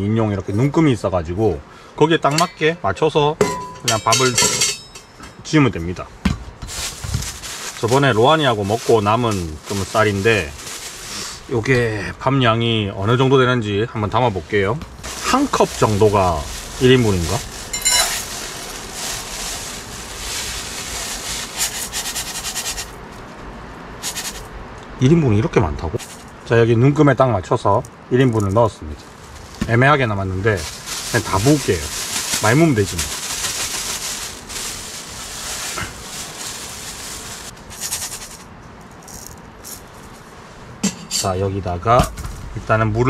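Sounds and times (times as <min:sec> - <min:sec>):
dry rice pouring: 0:06.8 - 0:11.7, 0:14.3 - 0:23.0, 0:30.4 - 0:39.8
rice grains rattling: 0:06.8 - 0:11.7, 0:14.5 - 0:23.0, 0:24.0 - 0:24.5, 0:30.4 - 0:40.2
rice poured into pot: 0:15.1 - 0:22.4.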